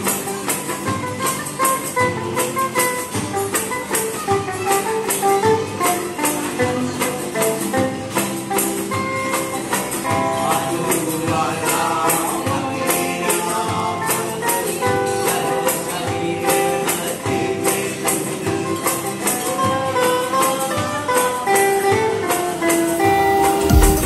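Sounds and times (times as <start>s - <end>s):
acoustic guitars strummed: 0.0s - 24.0s
hand drum and percussion: 0.0s - 24.0s
man singing: 9.6s - 24.0s.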